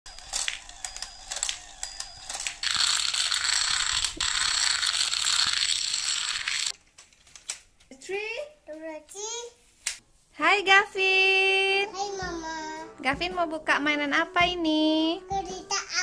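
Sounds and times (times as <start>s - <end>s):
scattered clicks: 0.1s - 6.7s
plastic dominoes clattering: 0.1s - 7.5s.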